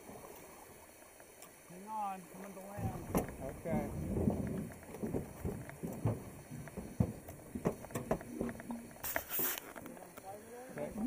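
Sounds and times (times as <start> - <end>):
water sounds: 0.0 - 11.0
oars knocking on boat: 2.7 - 9.0.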